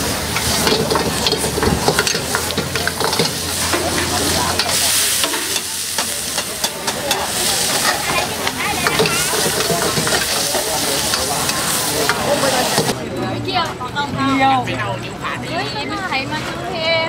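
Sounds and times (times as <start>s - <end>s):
ladle scraping and clanking on wok: 0.0s - 13.0s
steady sizzling: 0.0s - 13.0s
wok flaring with hissing sizzle: 0.0s - 13.0s.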